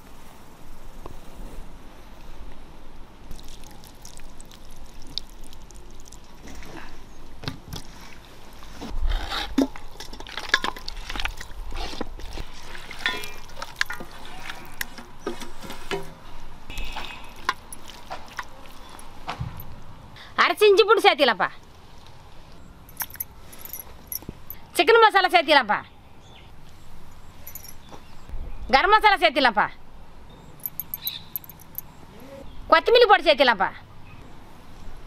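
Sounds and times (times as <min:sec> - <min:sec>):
water pouring and splashing: 0:03.3 - 0:06.8, 0:10.3 - 0:14.8, 0:16.9 - 0:19.6.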